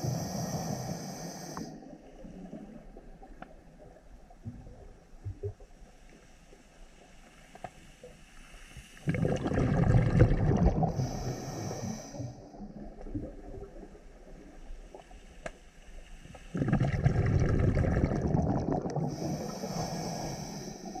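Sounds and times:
underwater breath bubbles: 0.0 - 2.8, 8.8 - 13.8, 16.2 - 21.0.

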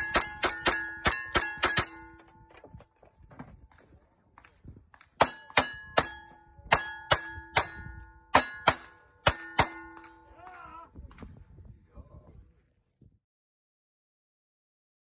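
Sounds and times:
steel target clanging: 0.0 - 2.7, 5.2 - 10.3.

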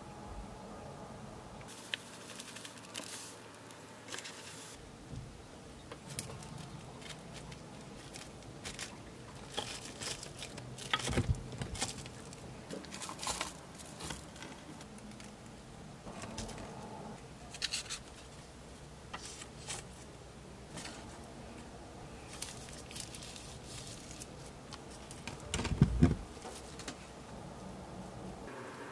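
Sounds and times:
plastic wrap crinkling: 1.7 - 4.8, 6.0 - 15.4, 22.2 - 25.5.

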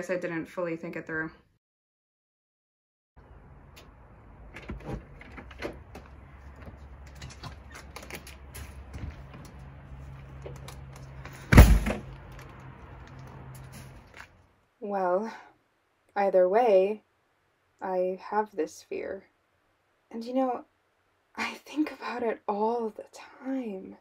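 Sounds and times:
lock clicks and rattles: 3.8 - 6.3
door shutting with a bang: 11.3 - 12.2.

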